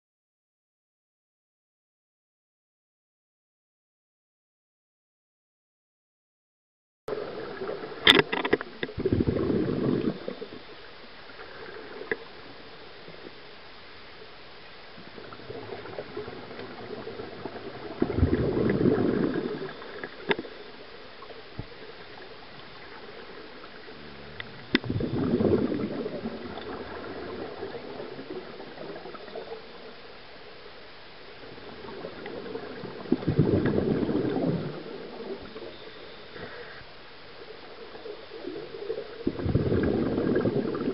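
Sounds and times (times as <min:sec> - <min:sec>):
underwater bubbling exhalation: 0:07.1 - 0:10.6, 0:15.2 - 0:20.6, 0:22.8 - 0:29.6, 0:31.6 - 0:35.8, 0:38.3 - 0:40.9
low steady hiss: 0:07.1 - 0:40.9
faint ticks: 0:08.0 - 0:09.0, 0:11.3 - 0:12.5, 0:19.7 - 0:20.6, 0:23.6 - 0:24.9.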